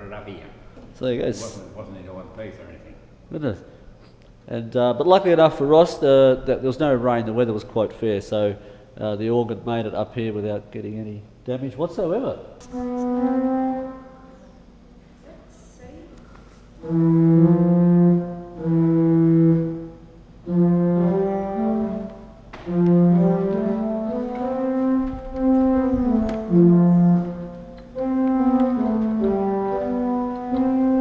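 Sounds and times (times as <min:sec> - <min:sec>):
pipe organ playing slow tune: 0:12.6 - 0:14.8, 0:16.7 - 0:31.0.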